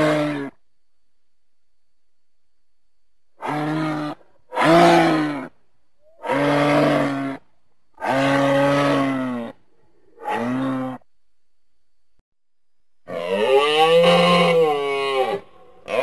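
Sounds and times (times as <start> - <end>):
moose calling: 3.4 - 9.6, 10.2 - 11.1.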